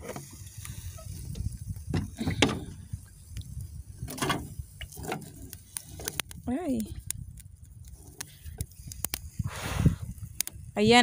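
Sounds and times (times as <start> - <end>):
low steady rumble: 0.0 - 11.0
skewer scraping a wire grill: 4.0 - 6.3.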